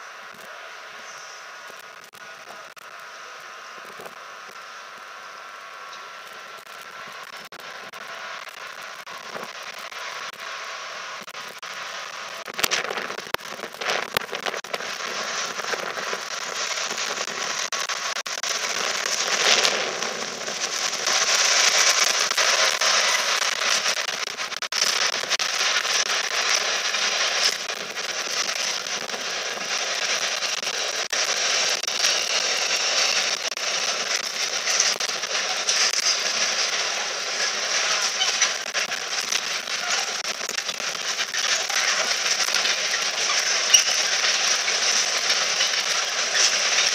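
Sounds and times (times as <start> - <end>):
wagons rolling on rails: 12.3 - 46.9.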